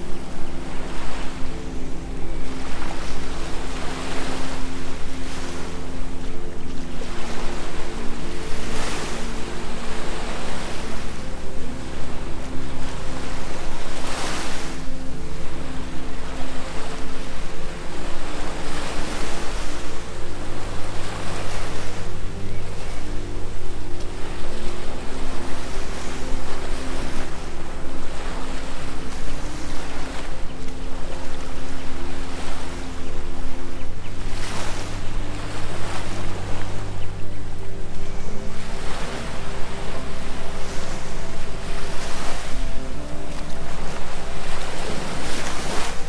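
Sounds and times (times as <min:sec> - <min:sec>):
low humming drone: 0:00.0 - 0:46.0
low sustained tones: 0:00.0 - 0:46.0
ocean surf on beach: 0:00.0 - 0:46.0
surf washing onto beach: 0:34.2 - 0:46.0.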